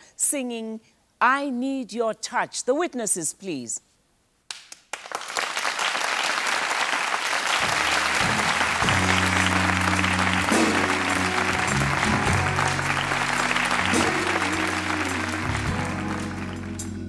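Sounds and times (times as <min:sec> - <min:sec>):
audience applauding: 0:04.5 - 0:17.0
band playing low held notes: 0:07.6 - 0:17.0.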